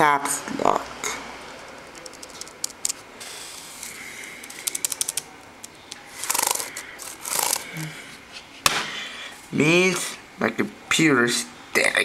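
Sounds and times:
laptop keys clicking: 1.7s - 3.0s, 4.3s - 7.6s.

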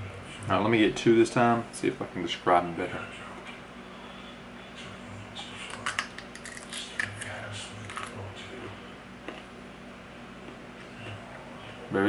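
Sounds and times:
nuts being chewed: 5.8s - 9.5s.

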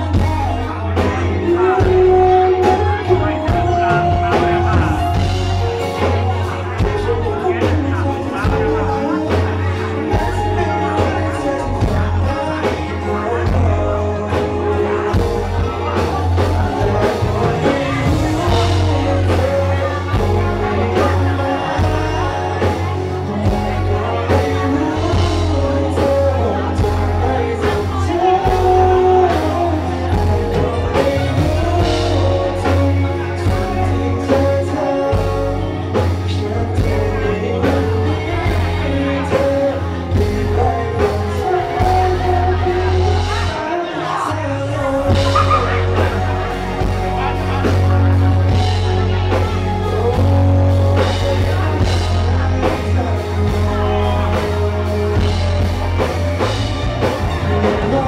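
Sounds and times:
bass: 0.0s - 58.0s
live band music: 0.0s - 58.0s
person singing: 0.0s - 58.0s.

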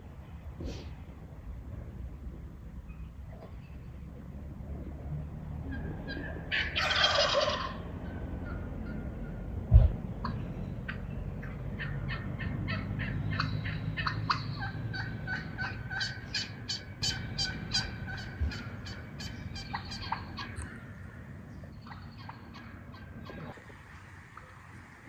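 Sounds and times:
turkeys calling: 5.6s - 23.7s.

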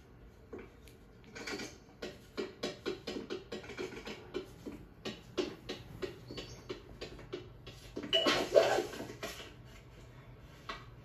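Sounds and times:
plastic toy footsteps on wooden floor: 1.6s - 8.2s.

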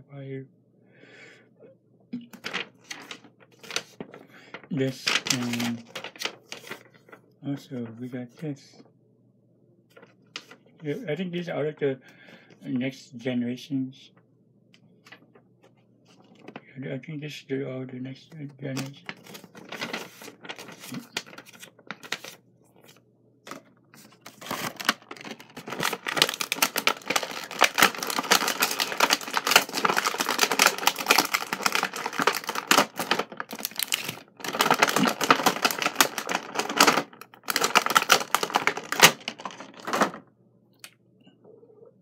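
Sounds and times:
plastic packaging crinkling: 2.3s - 7.1s, 18.6s - 40.2s
paper rustling: 2.3s - 7.2s, 9.9s - 11.0s, 15.0s - 16.6s, 18.4s - 40.2s.

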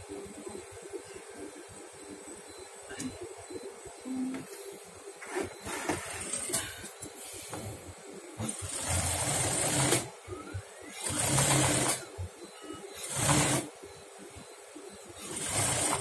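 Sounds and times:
sewing machine stitching: 8.4s - 10.1s, 10.9s - 12.0s, 13.0s - 13.7s, 15.2s - 16.0s.

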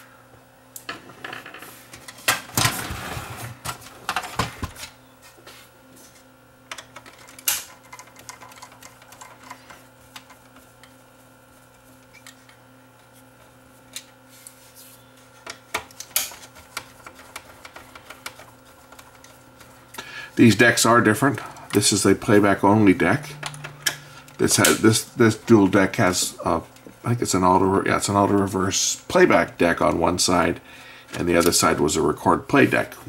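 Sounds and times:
faint steady hum: 0.0s - 33.0s
plastic parts clicking and rattling: 6.7s - 10.4s.

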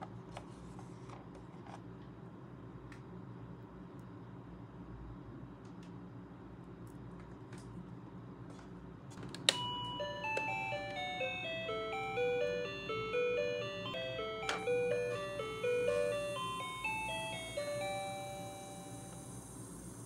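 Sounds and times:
electronic beeping melody: 9.6s - 19.5s.

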